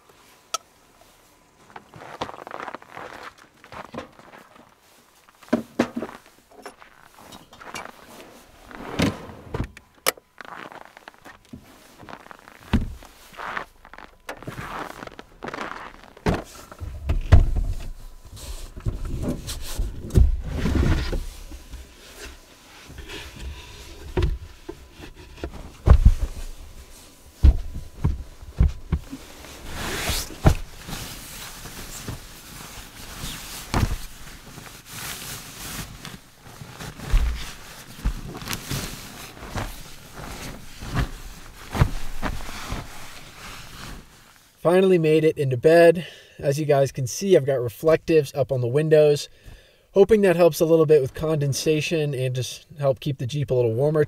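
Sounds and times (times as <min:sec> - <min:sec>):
rustling of blankets: 0:00.1 - 0:44.6
thumps and knocks inside vehicle: 0:05.5 - 0:06.8, 0:12.6 - 0:13.2, 0:16.1 - 0:34.8, 0:35.8 - 0:44.0.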